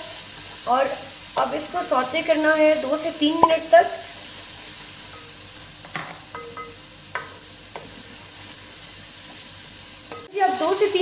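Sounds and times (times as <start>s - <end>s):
onions sizzling in pot: 0.0s - 11.0s.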